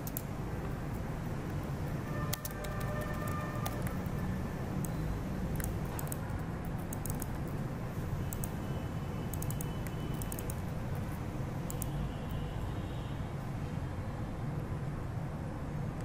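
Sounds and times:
keyboard keys clicking: 0.0 - 0.3, 2.3 - 4.2, 4.8 - 7.6, 8.3 - 8.6, 9.3 - 10.6, 11.7 - 12.0
low background hum: 0.0 - 16.0.

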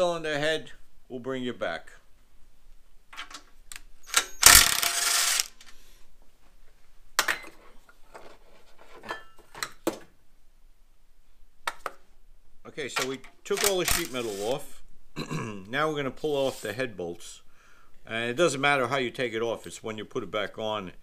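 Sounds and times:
cordless drill running: 4.4 - 5.6
clicks and knocks of metal tools: 12.9 - 14.2.

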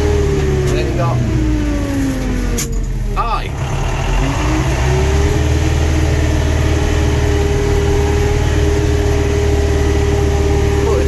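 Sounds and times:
tractor diesel engine: 0.0 - 11.0.

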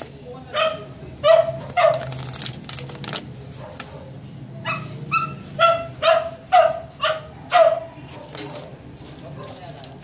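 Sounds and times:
dog barking: 0.5 - 2.1, 3.6 - 9.7
plastic packaging crinkling: 1.6 - 4.0, 8.3 - 10.0.

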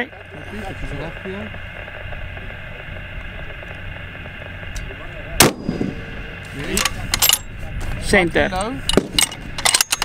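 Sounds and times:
rifle shot: 5.4 - 6.2.

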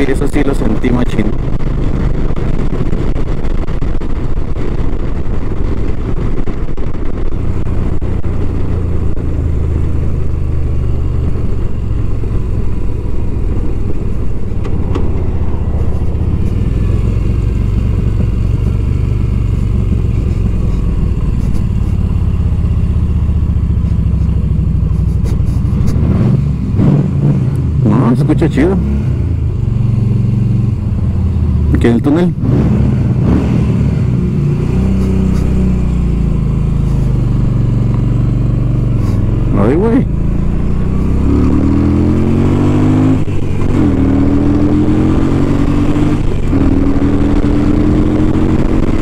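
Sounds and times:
wind rushing on microphone: 0.0 - 22.6
motorcycle engine cruising: 0.0 - 49.0.

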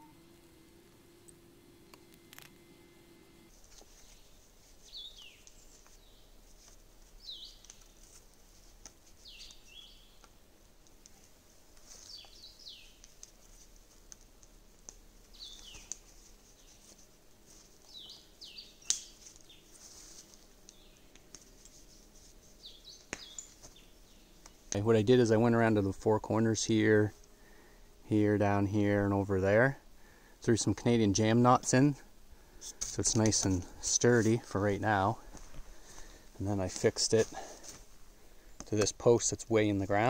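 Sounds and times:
rustling of cord being wrapped: 3.5 - 24.8, 35.2 - 38.8.

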